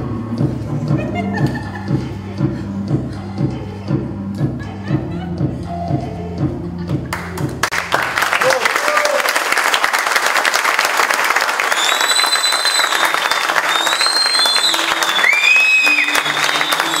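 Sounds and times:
audience applauding: 0:07.1 - 0:17.0
high held whistles: 0:11.7 - 0:17.0.

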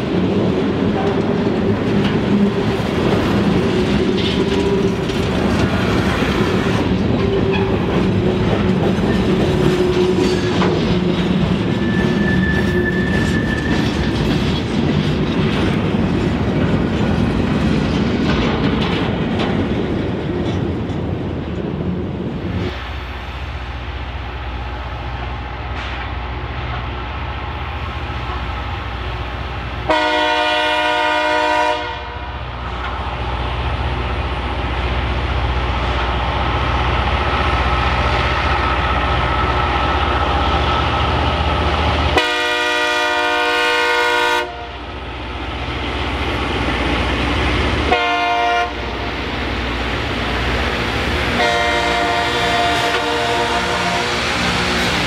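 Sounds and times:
diesel locomotive engine rumbling: 0:00.0 - 0:55.0
train air horn blasts: 0:29.9 - 0:32.3, 0:42.1 - 0:44.8, 0:47.9 - 0:48.9, 0:51.4 - 0:54.2.

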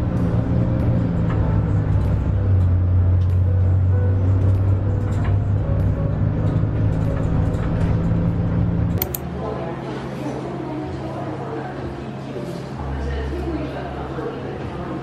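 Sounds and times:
bus engine droning: 0:00.0 - 0:09.8.

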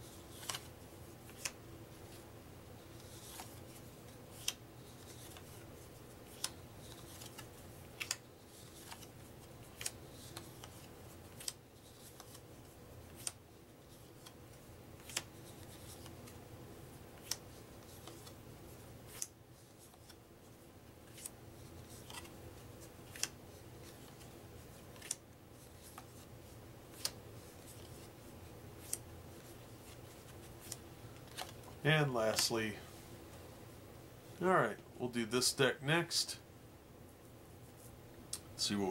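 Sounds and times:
faint low hum: 0:00.0 - 0:38.9
cards snapping: 0:06.3 - 0:08.2, 0:17.2 - 0:18.4, 0:23.1 - 0:23.4.

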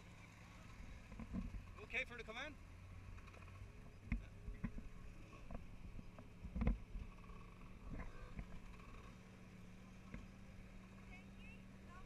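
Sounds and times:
armoured car engine running: 0:00.0 - 0:12.0
knocks and thumps: 0:04.0 - 0:06.9.

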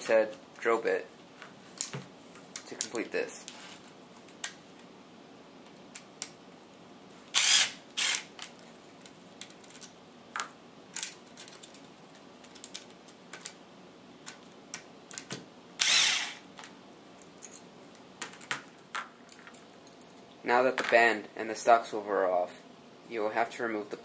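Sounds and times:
cordless drill running: 0:07.3 - 0:08.3, 0:15.8 - 0:16.4.

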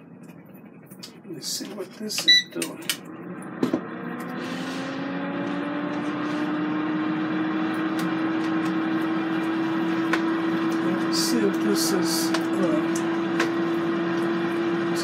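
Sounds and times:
air fryer fan humming: 0:05.0 - 0:15.0.

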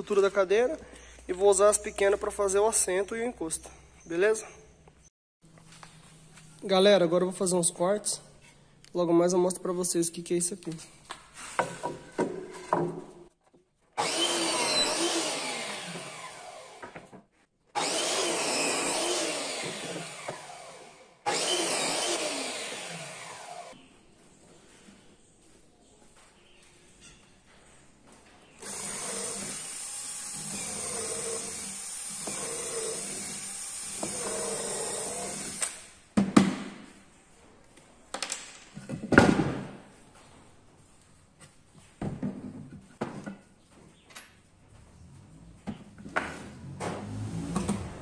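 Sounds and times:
wooden knocks and clatters: 0:11.5 - 0:13.6
power tool cutting wood: 0:14.0 - 0:17.1, 0:17.8 - 0:23.8, 0:28.6 - 0:35.9, 0:46.5 - 0:48.0.

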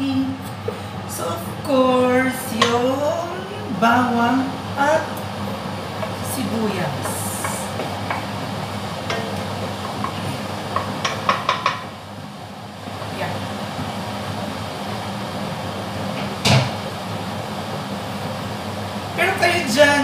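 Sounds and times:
steady low hum: 0:00.0 - 0:20.0
garlic and onion sizzling in oil: 0:02.0 - 0:15.9
wooden spatula taps: 0:07.0 - 0:08.3, 0:09.1 - 0:11.9.

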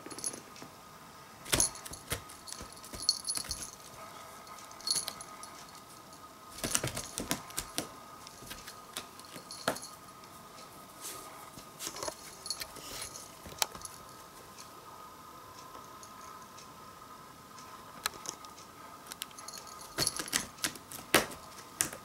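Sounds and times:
paws thumping on foam mats: 0:01.5 - 0:03.8, 0:06.6 - 0:09.9, 0:19.9 - 0:22.0
cat collar jingling: 0:01.6 - 0:05.8, 0:19.4 - 0:20.6.

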